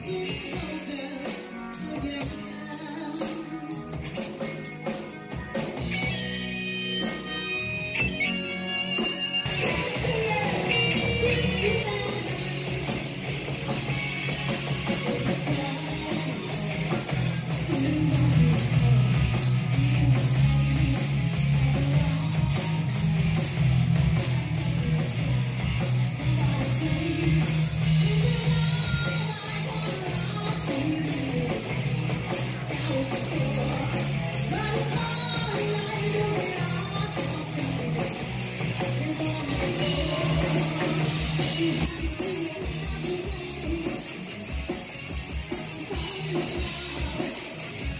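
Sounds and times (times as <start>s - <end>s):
lead singer singing: 0.0s - 4.2s, 9.2s - 13.4s, 14.9s - 16.8s, 17.5s - 23.1s, 26.0s - 44.4s, 45.7s - 47.9s
bass guitar: 0.0s - 47.9s
drum kit: 0.0s - 47.9s
electric guitars: 0.0s - 47.9s.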